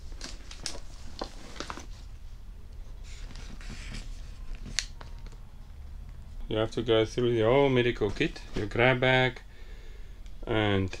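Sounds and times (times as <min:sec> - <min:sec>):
rustle of fabric and plastic: 0:00.0 - 0:02.3.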